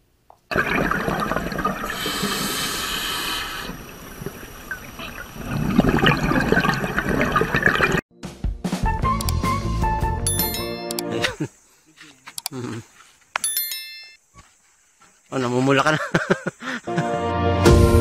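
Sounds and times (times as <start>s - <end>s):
underwater rushing water: 0.5s - 8.0s.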